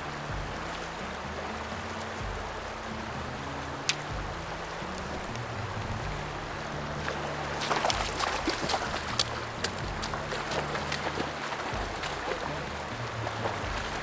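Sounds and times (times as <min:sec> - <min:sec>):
faint background music: 0:00.0 - 0:14.0
person wading through water: 0:00.0 - 0:14.0
stream running over rocks: 0:00.0 - 0:14.0
fish splashing in water: 0:07.0 - 0:14.0.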